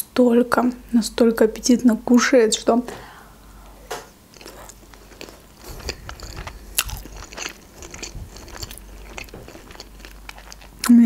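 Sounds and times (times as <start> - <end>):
chewing crunchy food: 4.3 - 11.0.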